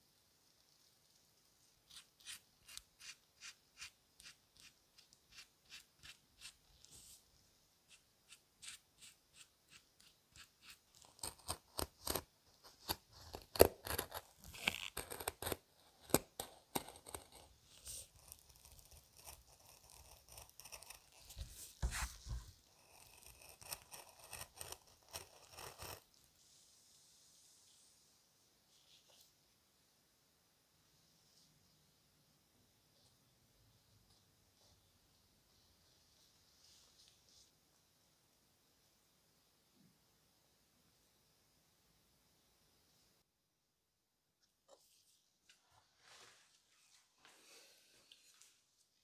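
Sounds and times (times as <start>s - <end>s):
leather being cut: 10.9s - 17.4s, 22.8s - 26.0s.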